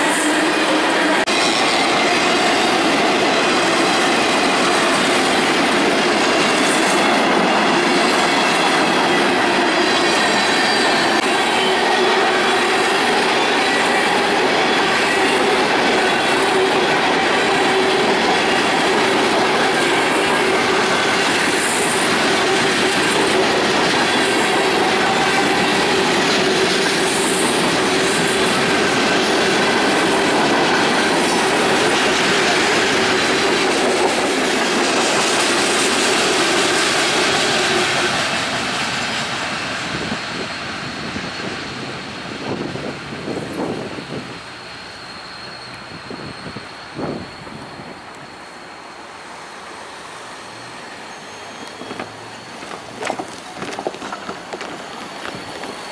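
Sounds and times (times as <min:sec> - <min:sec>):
freight train wheel clatter: 0:01.0 - 0:44.3, 0:51.2 - 0:55.9
wheel squeal: 0:06.5 - 0:33.5, 0:42.5 - 0:55.9.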